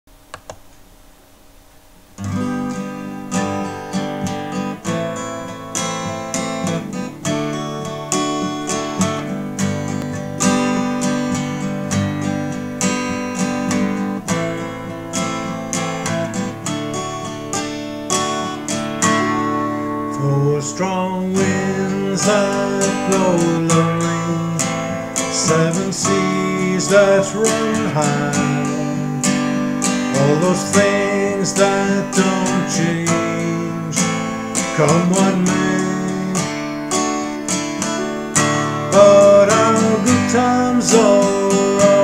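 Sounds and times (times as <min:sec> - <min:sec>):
faint clicks: 0:00.3 - 0:00.7
acoustic guitar strumming: 0:00.4 - 0:42.0.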